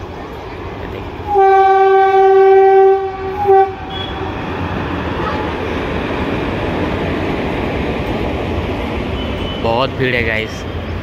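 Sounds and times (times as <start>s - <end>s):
train rumbling past: 0.0s - 11.0s
locomotive horn blasts: 1.3s - 4.4s.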